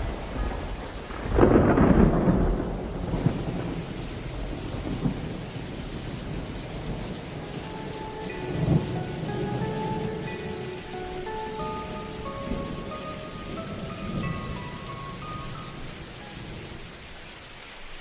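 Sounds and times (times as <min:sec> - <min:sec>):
thunder rumble: 0:00.0 - 0:17.2
steady rain: 0:00.0 - 0:18.0
faint held notes: 0:07.4 - 0:16.9.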